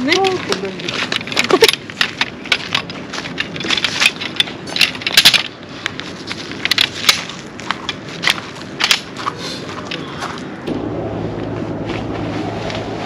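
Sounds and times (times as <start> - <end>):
hard objects clicking and clattering: 0.0 - 10.1.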